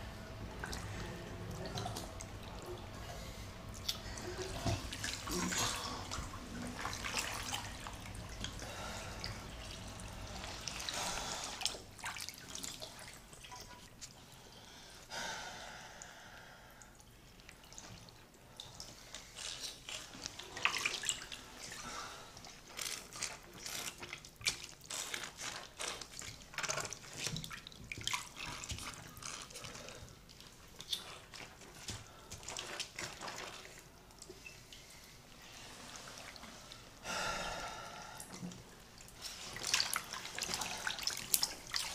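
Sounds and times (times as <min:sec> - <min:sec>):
water dripping in a bathtub: 0:00.1 - 0:15.2, 0:15.9 - 0:41.9
person shifting in wet clothing: 0:30.8 - 0:33.8.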